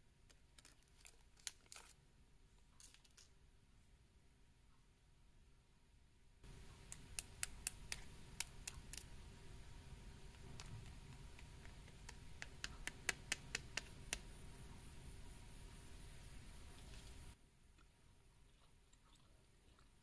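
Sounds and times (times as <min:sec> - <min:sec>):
snack strips clicking together: 0:06.9 - 0:09.1.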